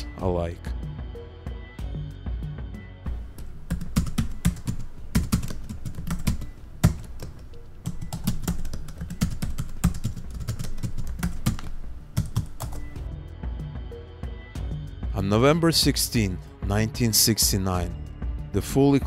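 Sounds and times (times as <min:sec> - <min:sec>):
rapid keyboard typing: 0:03.1 - 0:13.0.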